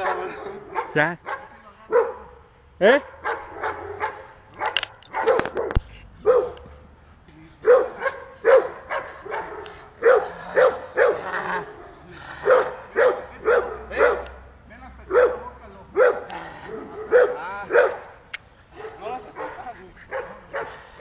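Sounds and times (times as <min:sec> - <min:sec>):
dog barking: 0:00.0 - 0:02.3, 0:03.0 - 0:06.7, 0:07.6 - 0:11.3, 0:12.4 - 0:14.4, 0:15.1 - 0:21.0.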